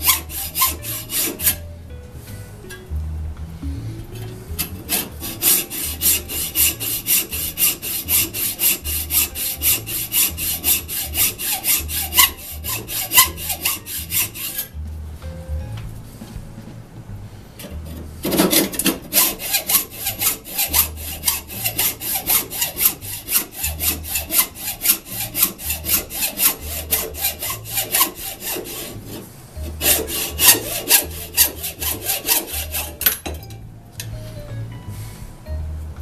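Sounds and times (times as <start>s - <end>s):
hacksaw cutting metal: 0.0s - 1.6s, 4.6s - 14.7s, 17.6s - 33.3s.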